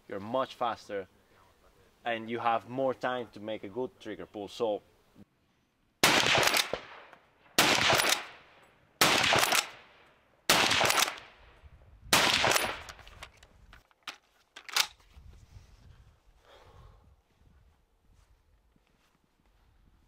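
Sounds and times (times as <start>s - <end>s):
rifle shots with echo: 6.0s - 11.5s, 12.1s - 13.0s.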